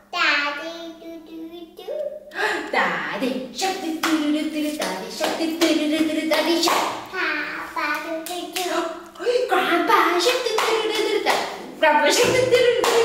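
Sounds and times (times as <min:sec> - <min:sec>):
woman singing: 0:02.4 - 0:06.8, 0:08.5 - 0:13.0
hands clapping in rhythm: 0:04.0 - 0:07.1, 0:07.8 - 0:08.8, 0:10.2 - 0:13.0.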